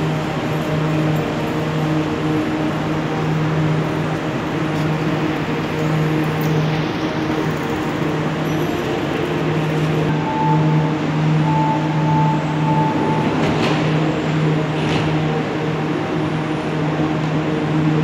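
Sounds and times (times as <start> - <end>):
high steady tone: 0.0 - 13.4
rushing noise: 0.0 - 18.0
train hum: 0.0 - 18.0.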